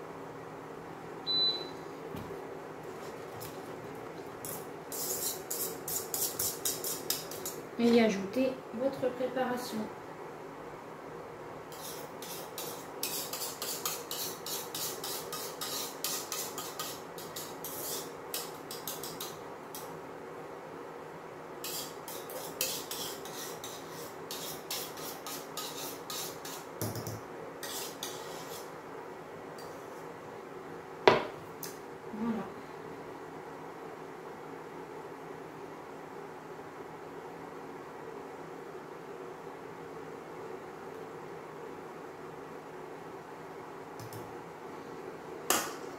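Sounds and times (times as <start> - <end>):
utensil scraping saucepan: 4.4 - 7.6, 11.7 - 19.4, 21.6 - 28.7.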